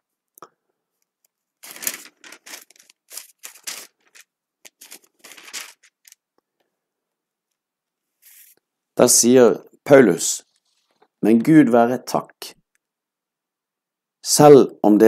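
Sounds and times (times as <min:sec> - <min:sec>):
thin book pages rustling: 0:01.6 - 0:06.2.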